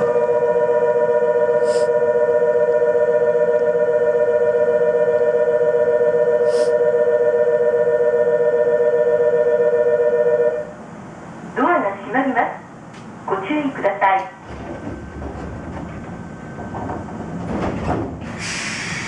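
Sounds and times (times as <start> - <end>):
brief hisses: 18.4 - 19.0.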